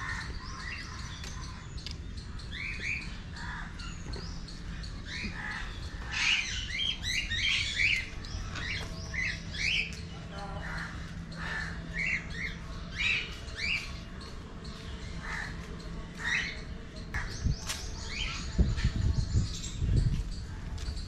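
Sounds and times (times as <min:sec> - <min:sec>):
parrots chirping and squawking: 0:00.0 - 0:14.2, 0:15.0 - 0:17.4.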